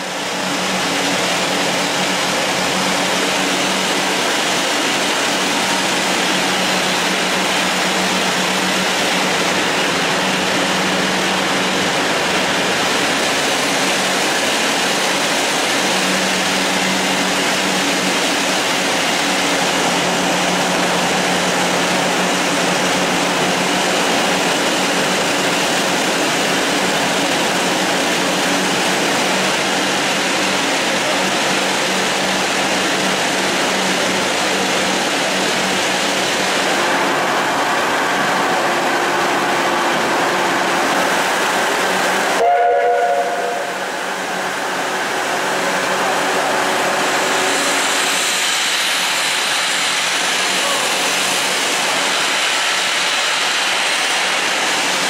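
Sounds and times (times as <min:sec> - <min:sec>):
short pitched tone: 0:42.4 - 0:43.8
hiss of escaping steam: 0:45.4 - 0:55.0.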